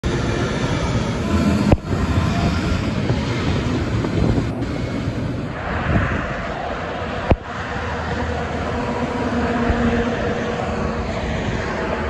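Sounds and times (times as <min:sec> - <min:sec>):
road traffic passing: 0:00.0 - 0:12.0
wind buffeting microphone: 0:00.0 - 0:12.0.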